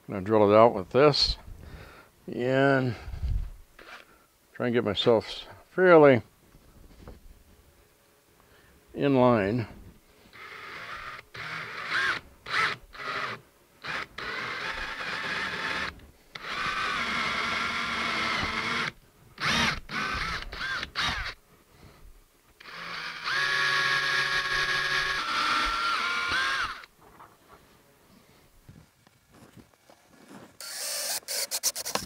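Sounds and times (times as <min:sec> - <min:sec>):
cordless drill motor whine: 0:03.8 - 0:04.1, 0:10.3 - 0:21.4, 0:22.6 - 0:26.9, 0:30.6 - 0:32.0.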